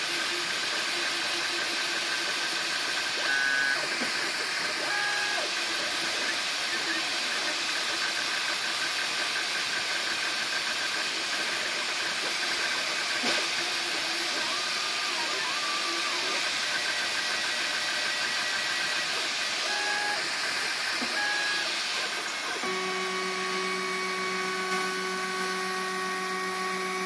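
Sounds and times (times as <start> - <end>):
stepper motors whining: 10.0 - 27.0.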